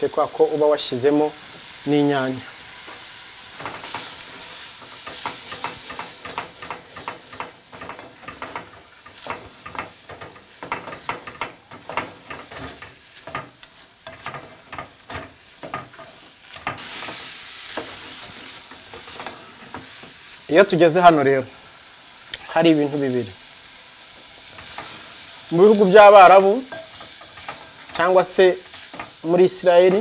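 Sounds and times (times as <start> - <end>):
food sizzling: 0.0 - 30.0
wooden spoon scraping metal pot: 3.6 - 20.1.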